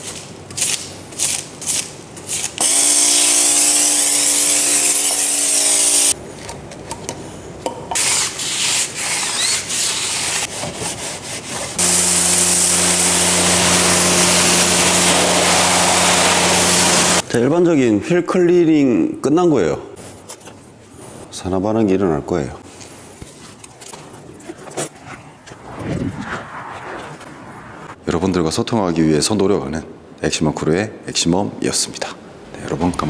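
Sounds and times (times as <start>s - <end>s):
pressure washer water jet hissing: 2.6s - 6.2s, 11.8s - 17.2s
brush scrubbing wet wheel: 9.9s - 17.2s
pump motor whine: 11.8s - 17.2s.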